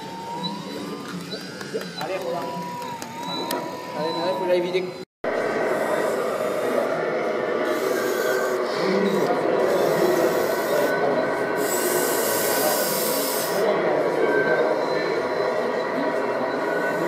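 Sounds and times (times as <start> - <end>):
model excavator motors running: 7.6 - 13.7
high hydraulic hiss: 11.6 - 13.7.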